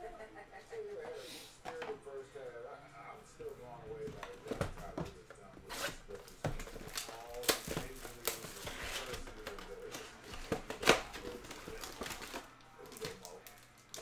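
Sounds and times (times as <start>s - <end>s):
foil wrappers handled: 4.0s - 14.0s
plastic wrap crackling and ripping: 5.6s - 14.0s.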